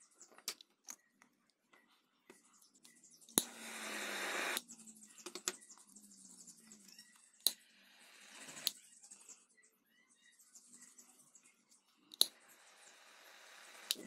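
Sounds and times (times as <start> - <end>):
sharp clicks: 3.4 - 4.6, 13.2 - 14.0.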